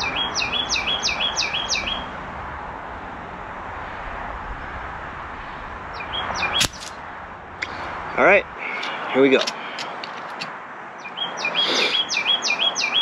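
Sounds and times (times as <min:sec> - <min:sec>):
songbird singing: 0:00.0 - 0:02.2, 0:05.5 - 0:13.0
outdoor background hiss: 0:00.0 - 0:13.0
sharp click: 0:06.6 - 0:07.0.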